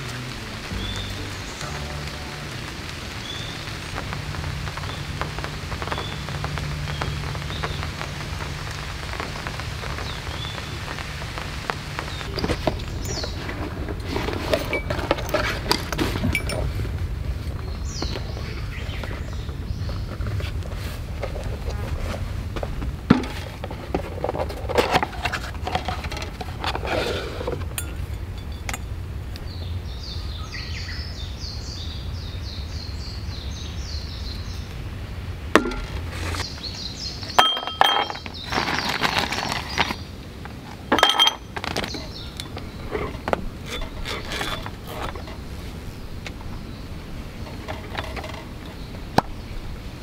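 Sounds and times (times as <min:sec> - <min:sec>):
low rumble: 0:00.0 - 0:37.8
glass clinks: 0:16.3 - 0:16.7, 0:27.7 - 0:29.0, 0:37.4 - 0:38.3, 0:40.9 - 0:41.5.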